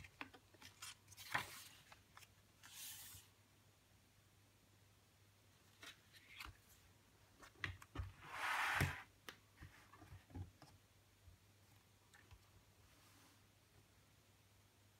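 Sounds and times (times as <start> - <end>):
cover swish: 8.2 - 9.1.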